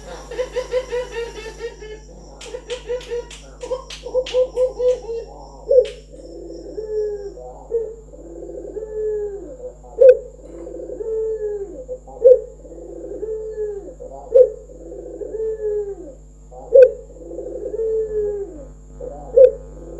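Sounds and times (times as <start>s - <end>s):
dove cooing: 0.0s - 19.9s.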